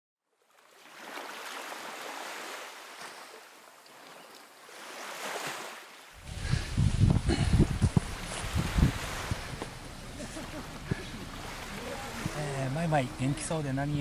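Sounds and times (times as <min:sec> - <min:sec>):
surf rushing: 0:00.9 - 0:14.0
wind buffeting microphone: 0:06.2 - 0:14.0.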